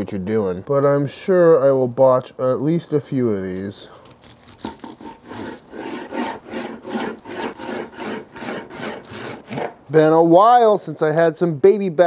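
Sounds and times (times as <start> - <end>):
knife sawing through ribs: 4.1 - 9.8
knife scraping wooden cutting board: 4.1 - 9.8.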